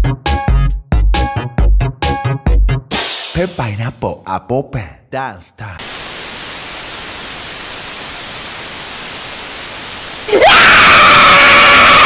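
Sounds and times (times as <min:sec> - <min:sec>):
tv static hiss: 0:05.8 - 0:10.4.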